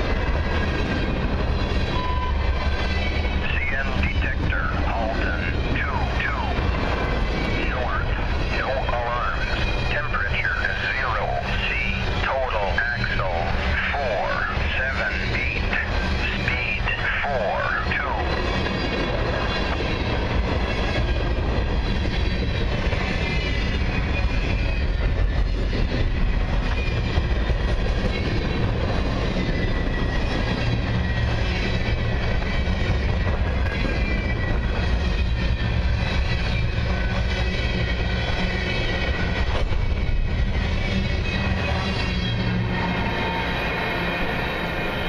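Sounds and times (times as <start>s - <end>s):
train wheels rumbling on rails: 0.0s - 45.0s.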